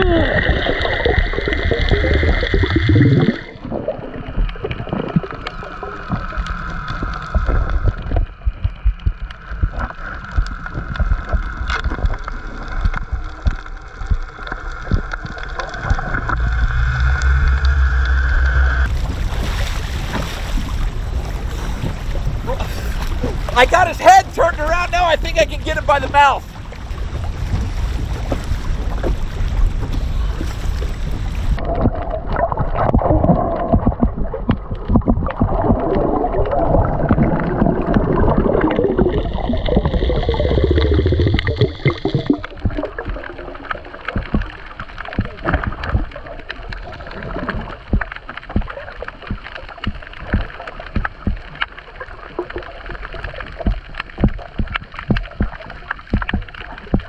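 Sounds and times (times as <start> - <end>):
underwater bubbling and gurgling: 0.0 - 57.0
water splashing at surface: 0.0 - 57.0
wind: 0.0 - 57.0
crackle of underwater clicks: 0.6 - 18.2, 31.6 - 57.0.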